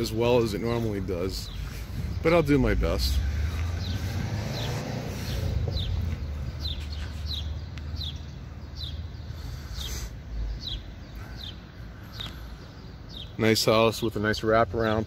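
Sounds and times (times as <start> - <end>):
steady low rumble: 0.0 - 8.2
bird chirping: 0.0 - 15.0.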